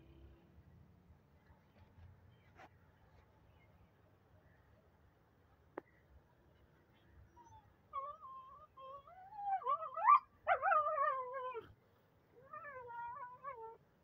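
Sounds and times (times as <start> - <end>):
puppies whining and squealing: 7.4 - 11.7.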